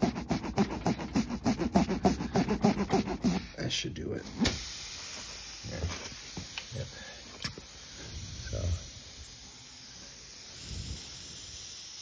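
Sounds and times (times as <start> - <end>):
steady high hiss: 3.3 - 12.0.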